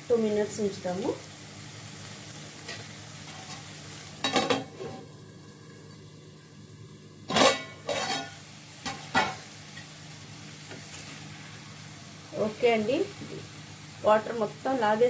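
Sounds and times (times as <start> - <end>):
curry sizzling in pan: 0.0 - 15.0
metal utensils clanking on pan: 2.6 - 5.1, 7.3 - 9.9.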